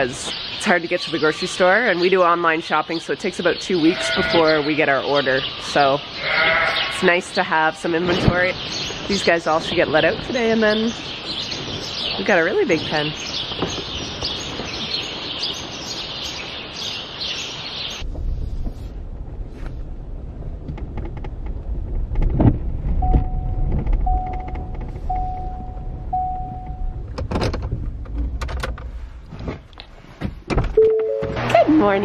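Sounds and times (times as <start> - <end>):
birds chirping: 0.0 - 18.1, 24.0 - 27.0
vehicle rumble from inside cab: 18.0 - 30.0
vehicle warning chime: 23.0 - 27.1, 30.8 - 32.0.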